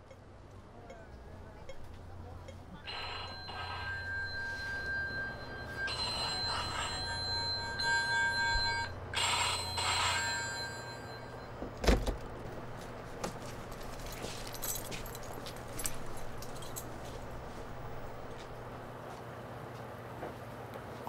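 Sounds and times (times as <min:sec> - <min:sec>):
mobile phone ringing: 0:02.8 - 0:11.6.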